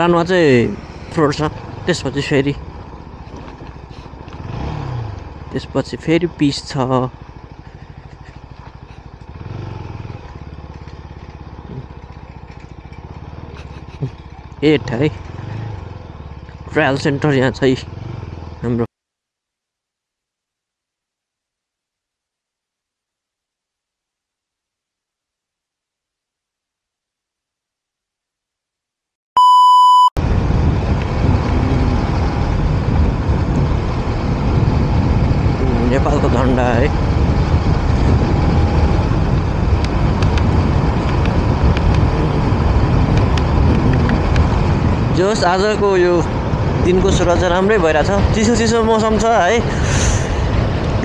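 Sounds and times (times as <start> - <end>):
vehicle engine pulsing: 0.0 - 18.9, 30.2 - 51.0
loud electronic beep: 29.4 - 30.2.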